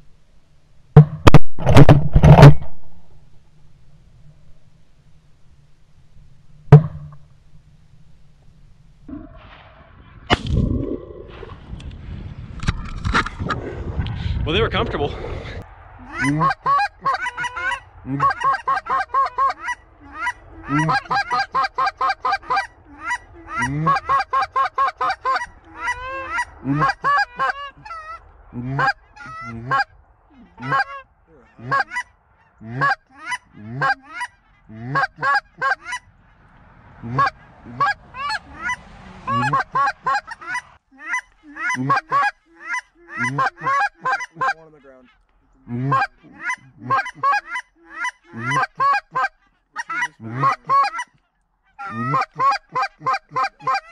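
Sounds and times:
goose call honks and clucks: 16.1 - 53.9.

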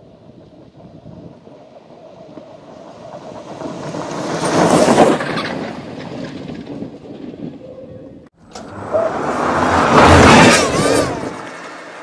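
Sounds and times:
race car driving past: 8.4 - 12.0.

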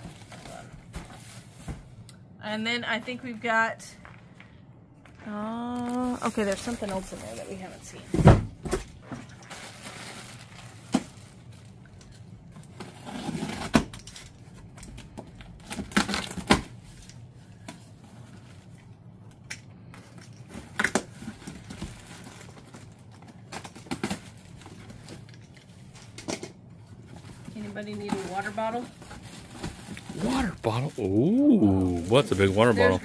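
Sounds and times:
plastic or paper rustling: 5.8 - 8.1, 9.0 - 17.0, 20.4 - 26.1, 26.9 - 33.0.

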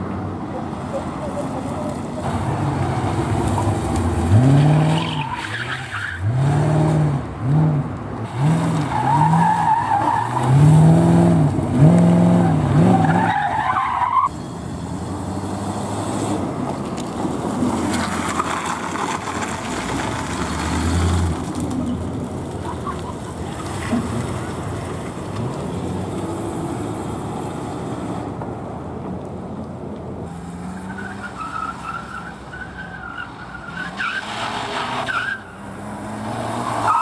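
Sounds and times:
car engine revving: 2.2 - 13.4
tyre squeal: 36.6 - 37.0.

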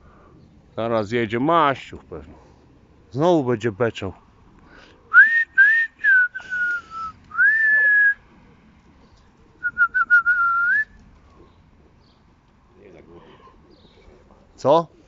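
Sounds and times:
person whistling: 5.1 - 8.2, 9.6 - 10.9.

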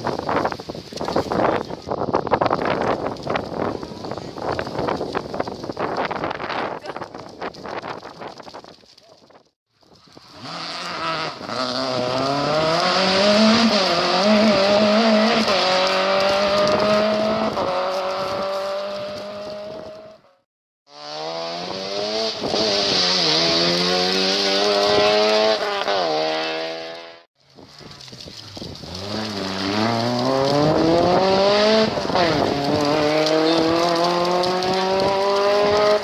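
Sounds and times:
rally car engine at full throttle: 10.3 - 27.2, 28.7 - 36.0.

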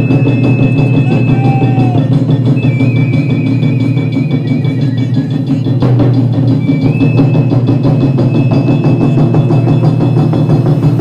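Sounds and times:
high steady tone: 0.0 - 5.7
taiko drums fast rhythm: 0.0 - 11.0.

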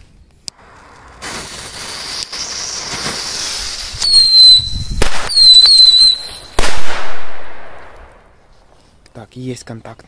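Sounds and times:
fireworks fizzing hiss: 0.4 - 9.0
high wavering firework whistles: 0.6 - 6.6
sharp firework bangs: 1.2 - 8.1.

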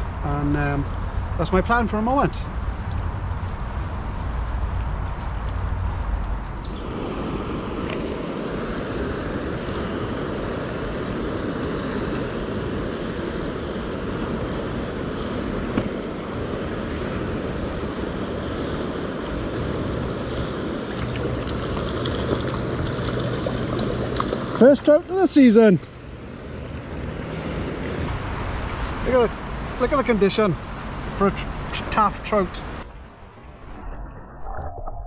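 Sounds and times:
small water splashes: 20.8 - 25.1.

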